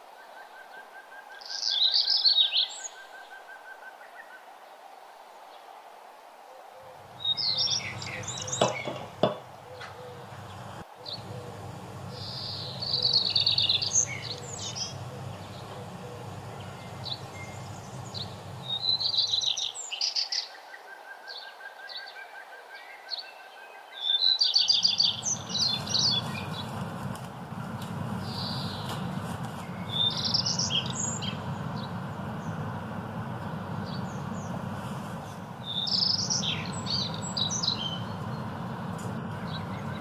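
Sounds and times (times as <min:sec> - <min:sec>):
birds chirping and trilling: 0:00.2 - 0:04.4, 0:06.8 - 0:40.0
low steady hum: 0:06.8 - 0:19.4, 0:24.8 - 0:40.0.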